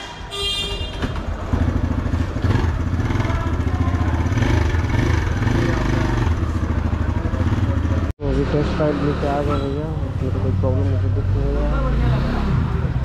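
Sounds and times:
motorcycle engine running: 1.0 - 11.2.

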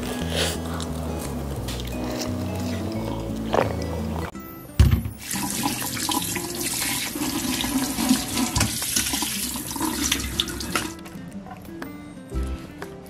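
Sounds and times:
tap water running into sink: 5.0 - 10.9
chicken rinsed by hand: 5.2 - 11.0.

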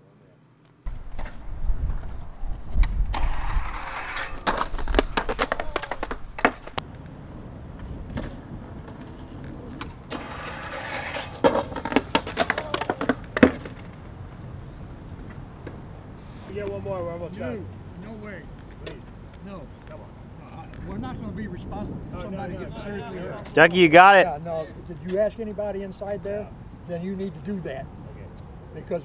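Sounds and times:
skateboard wheels rolling and scraping: 0.9 - 16.8
skateboard clacking and clattering: 3.2 - 6.8, 8.1 - 14.0.

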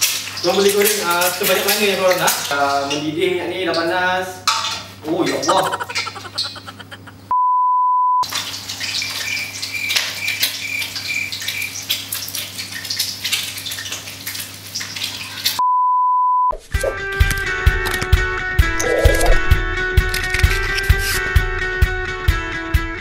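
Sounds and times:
censor bleep: 7.3 - 8.2, 15.6 - 16.6.

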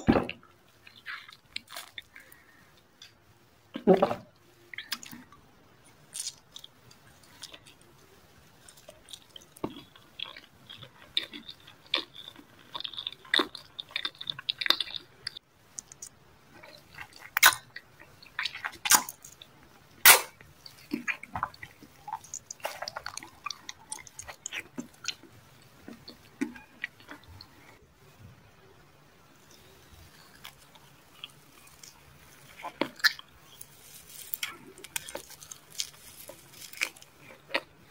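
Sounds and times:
wet chewing and mouth smacks: 8.7 - 19.5, 20.1 - 27.8
crunchy bites: 16.0 - 25.2, 30.1 - 37.7.

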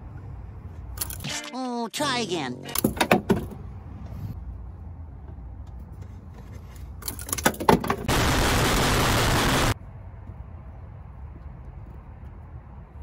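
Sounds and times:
harsh distorted noise burst: 8.1 - 9.8.

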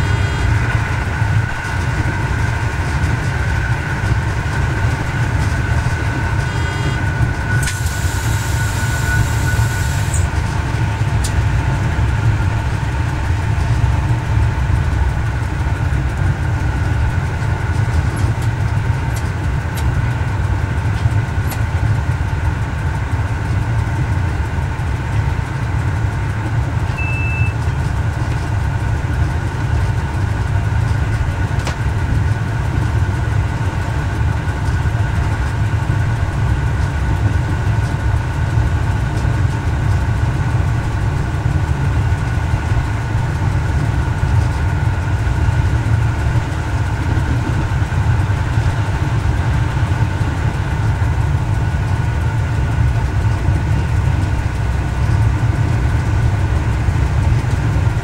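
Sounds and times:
railcar diesel engines running: 0.0 - 58.0
wheel-on-rail noise: 0.0 - 58.0
short high beep: 26.9 - 27.6.

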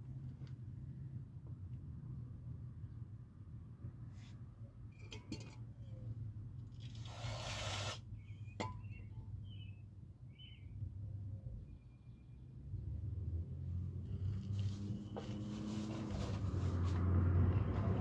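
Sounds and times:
short hiss: 7.0 - 8.0.

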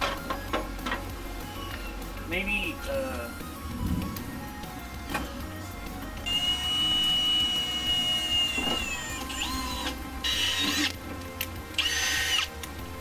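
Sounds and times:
cordless drill driving screws: 6.3 - 11.0, 11.8 - 12.6.

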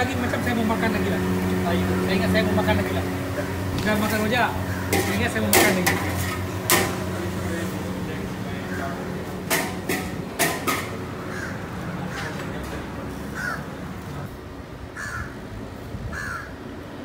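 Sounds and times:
crows cawing: 4.6 - 5.3, 11.2 - 12.5, 13.3 - 13.8, 14.9 - 15.4, 16.1 - 16.7.

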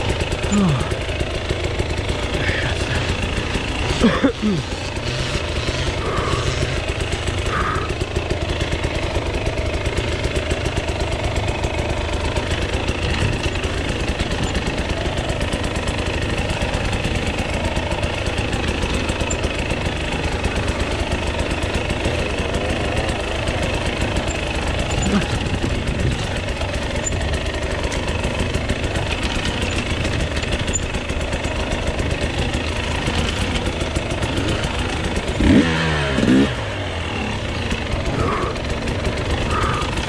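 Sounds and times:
motorcycle engine idling: 0.0 - 40.0.

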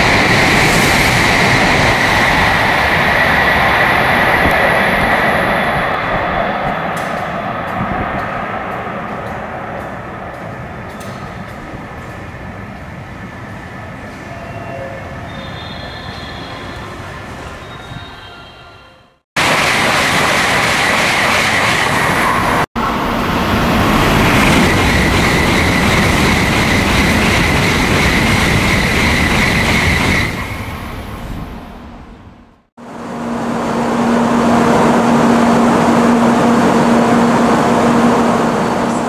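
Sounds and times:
loud rushing with low hum: 0.0 - 9.0
train rushing past at high speed: 0.0 - 39.0.

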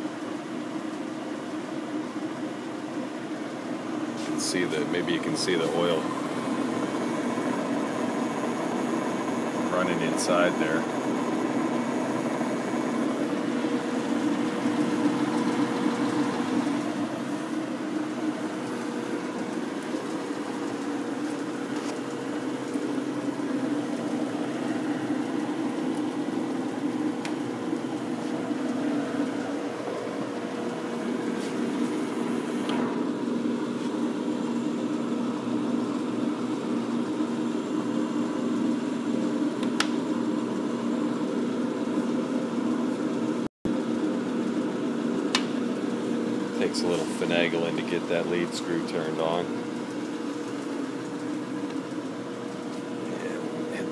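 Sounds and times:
lathe humming: 2.9 - 42.7.

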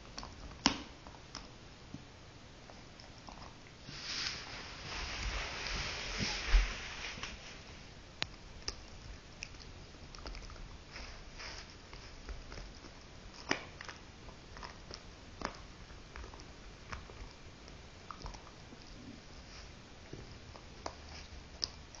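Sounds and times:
dog gnawing chew: 0.0 - 3.8, 8.2 - 22.0.

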